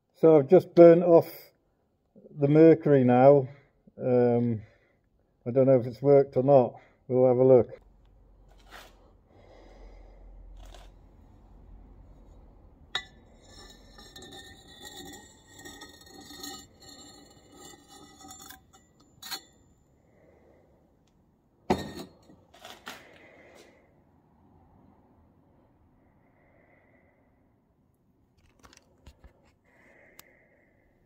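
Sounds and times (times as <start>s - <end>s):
squeaky metal scraping and clinking: 12.2s - 19.7s
sharp metal clanks: 13.0s - 19.6s.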